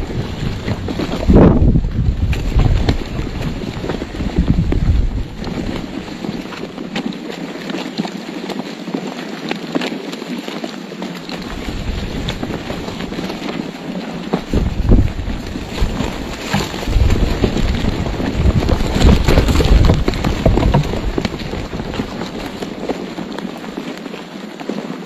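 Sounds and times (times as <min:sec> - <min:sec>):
wing-beats buffeting microphone: 0:00.0 - 0:07.2, 0:11.2 - 0:23.8
wings flapping: 0:11.2 - 0:23.8
sharp rustles and knocks: 0:11.3 - 0:25.0.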